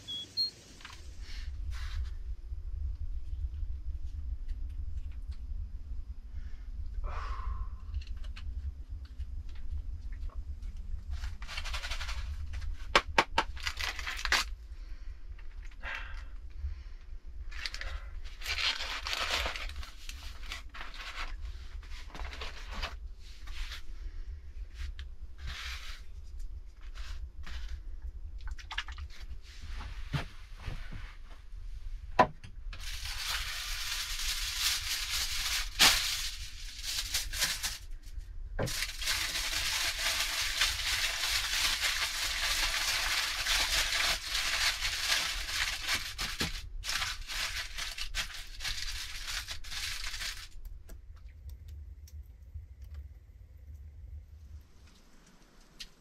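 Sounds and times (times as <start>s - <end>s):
paper and plastic wrapping rustling: 10.6s - 14.6s, 17.5s - 23.9s, 32.8s - 50.8s.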